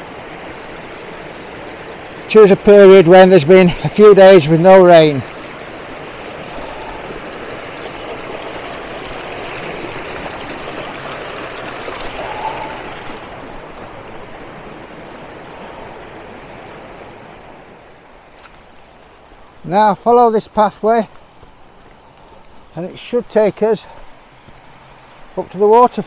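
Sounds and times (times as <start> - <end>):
stream flowing over stones: 0.0 - 26.0.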